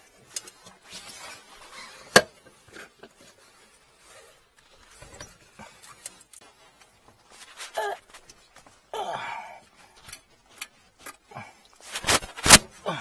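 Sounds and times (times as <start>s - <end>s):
gloves and jacket rustling: 9.9s - 13.0s.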